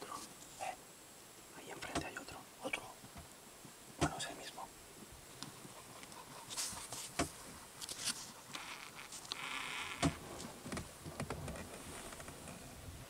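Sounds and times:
rustling in undergrowth: 2.9s - 13.0s.

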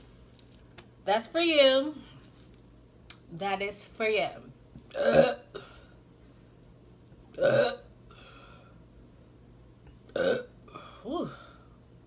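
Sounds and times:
woman burping: 4.9s - 5.8s, 7.3s - 7.9s, 10.1s - 11.4s.

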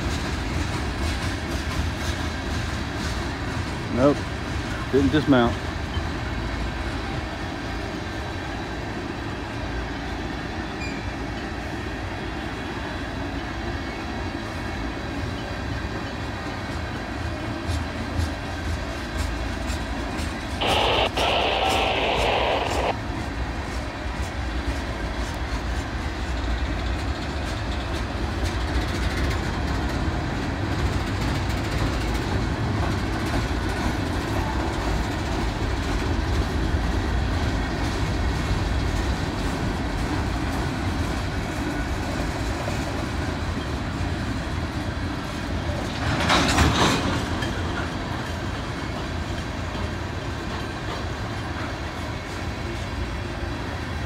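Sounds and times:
freight train wheels rumbling: 0.0s - 54.0s
brief loud burst of noise: 20.6s - 23.0s.

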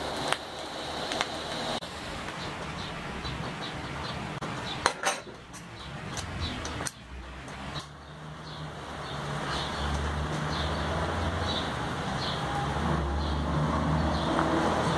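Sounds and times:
steel tools clinking on metal: 4.8s - 7.0s.

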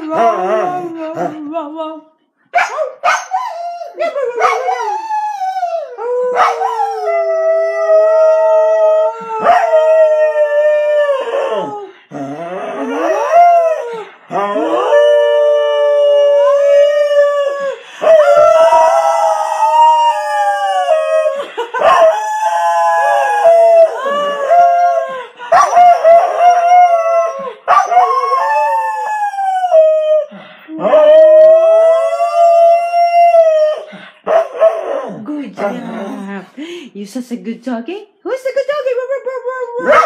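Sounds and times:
dog howling: 3.2s - 35.2s
woman howling: 3.9s - 30.2s.

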